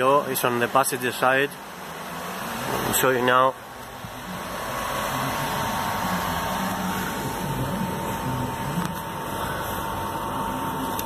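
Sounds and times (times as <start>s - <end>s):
car running hum and whir: 0.0s - 11.0s.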